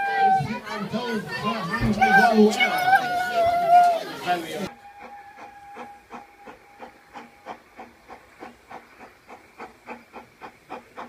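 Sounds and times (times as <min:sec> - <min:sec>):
steam locomotive chuffing: 0:04.7 - 0:11.0.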